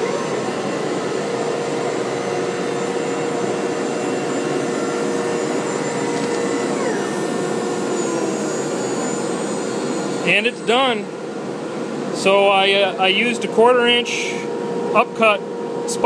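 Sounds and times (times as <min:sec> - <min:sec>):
dust extraction rushing: 0:00.0 - 0:11.1
router whine: 0:00.0 - 0:12.4.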